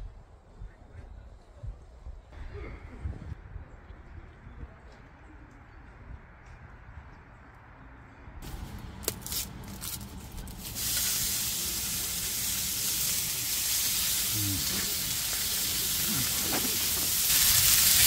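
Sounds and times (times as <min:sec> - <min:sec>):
meat sizzling on grill pan: 0:10.5 - 0:18.0.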